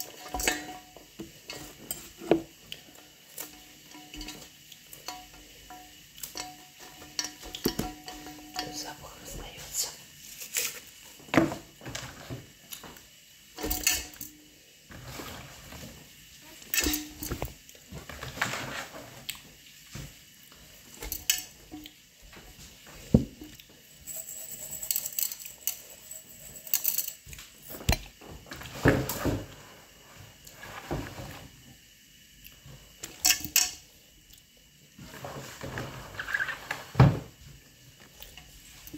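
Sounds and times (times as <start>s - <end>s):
dishes and utensils clinking: 0.0s - 9.4s, 13.6s - 14.4s, 16.6s - 17.5s, 21.0s - 21.9s, 23.4s - 28.1s
scraping or rustling: 6.4s - 12.5s, 14.9s - 19.3s, 35.0s - 37.3s.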